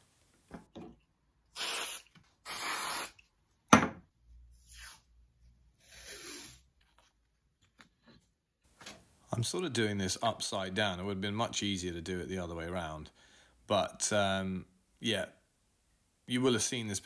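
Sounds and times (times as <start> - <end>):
aerosol spray can hissing: 1.5 - 3.2.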